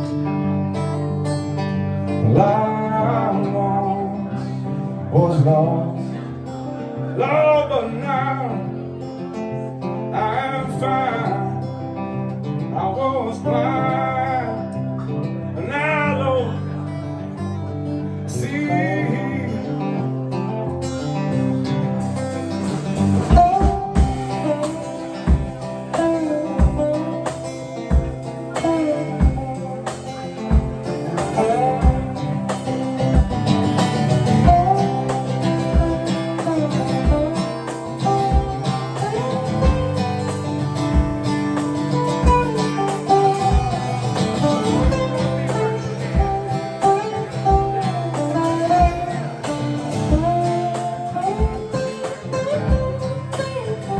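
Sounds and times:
acoustic guitar melody: 0.0 - 53.9
kick drum beat: 23.3 - 24.3, 25.3 - 25.6, 26.6 - 27.0, 27.9 - 28.2, 29.2 - 29.5, 30.5 - 30.8, 31.8 - 32.2, 33.2 - 33.4, 35.8 - 36.0, 40.9 - 41.2, 51.4 - 51.8, 52.7 - 53.0.

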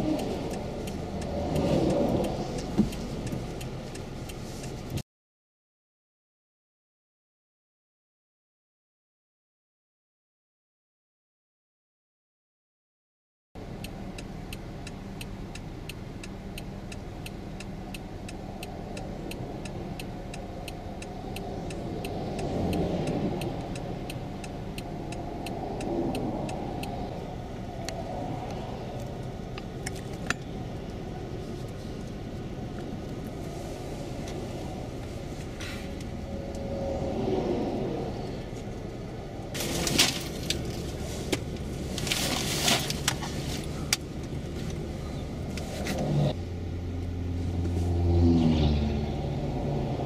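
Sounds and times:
highway traffic passing: 0.0 - 5.0, 13.6 - 50.0
light ticking: 0.0 - 5.0, 13.6 - 36.8.

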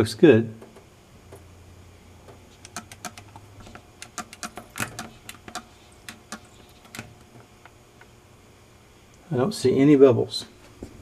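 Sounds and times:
light clicks and rattles: 2.3 - 8.1.

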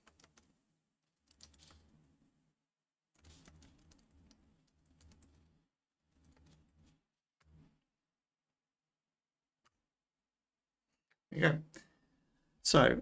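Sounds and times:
faint keyboard typing: 0.0 - 0.5, 1.1 - 2.0, 3.1 - 7.6.

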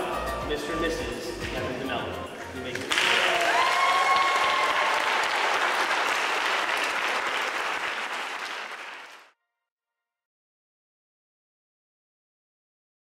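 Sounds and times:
crowd applauding: 2.7 - 9.3.

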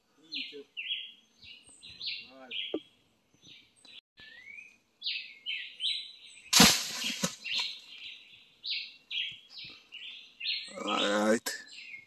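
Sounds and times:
songbirds chirping: 0.0 - 12.0
rustling leaves with thud: 6.5 - 7.9.

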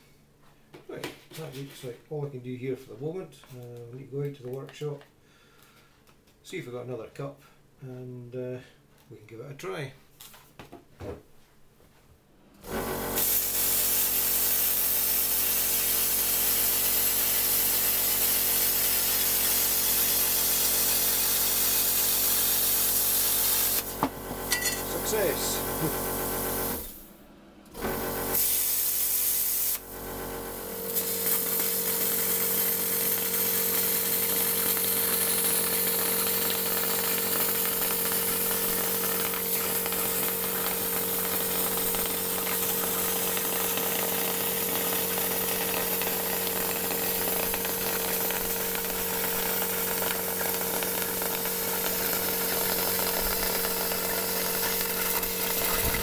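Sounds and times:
compressor hum: 12.4 - 14.3, 20.9 - 56.0
plasma cutter hissing: 13.2 - 27.0, 28.4 - 29.8, 30.6 - 56.0.

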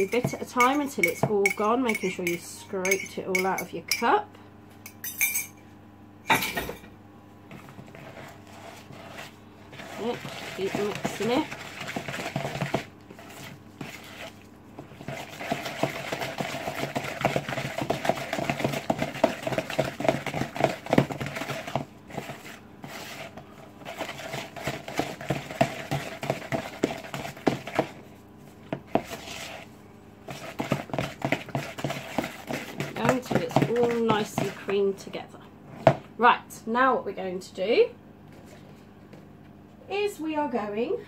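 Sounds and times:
wooden spoon beating in plastic bowl: 0.0 - 4.1, 9.7 - 29.6, 30.2 - 35.2.

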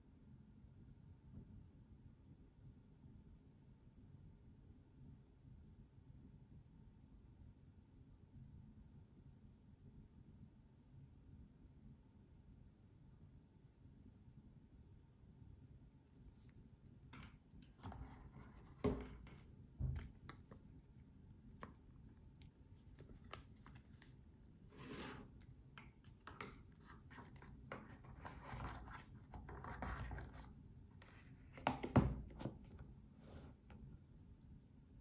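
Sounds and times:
box knocking on table: 31.6 - 32.6.

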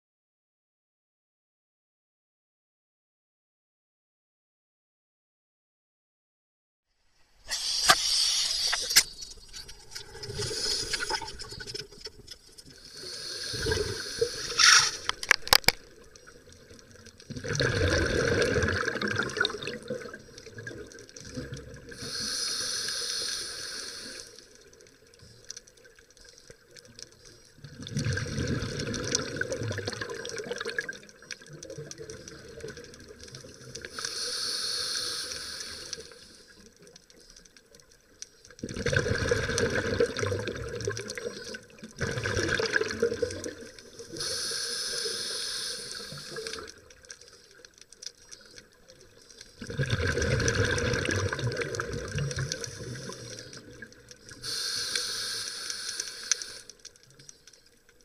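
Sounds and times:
hissing inhale through regulator: 7.4 - 9.3, 9.9 - 11.6, 12.8 - 15.2, 21.9 - 24.5, 33.8 - 37.4, 43.9 - 47.7, 52.2 - 57.6
bubbling exhale: 9.8 - 11.7, 12.8 - 15.2, 17.3 - 24.3, 49.5 - 56.7.

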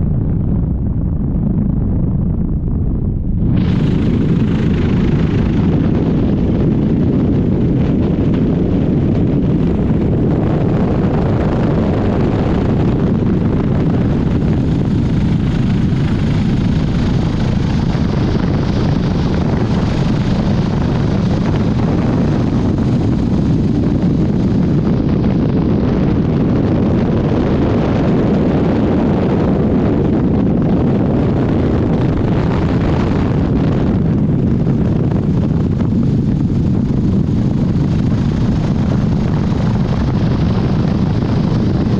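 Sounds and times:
helicopter rotor and engine: 3.3 - 41.9.

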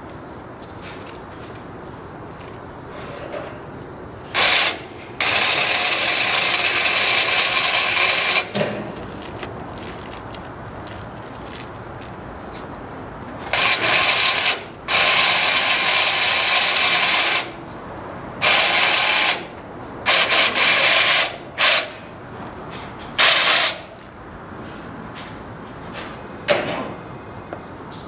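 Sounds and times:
mechanical ratcheting: 4.4 - 8.5.

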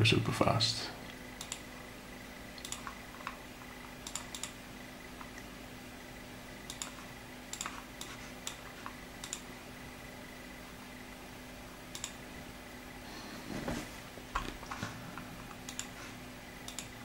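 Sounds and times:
faint steady hum: 0.0 - 17.0
computer mouse clicking: 1.4 - 1.7, 2.6 - 4.6, 6.6 - 9.5, 11.9 - 12.2, 14.4 - 16.0, 16.6 - 17.0.

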